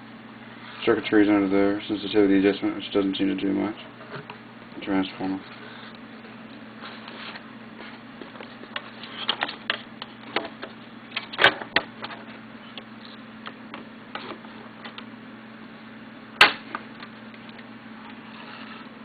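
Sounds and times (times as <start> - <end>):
steady low hum: 0.0 - 19.0
sharp plastic snap: 16.4 - 16.8.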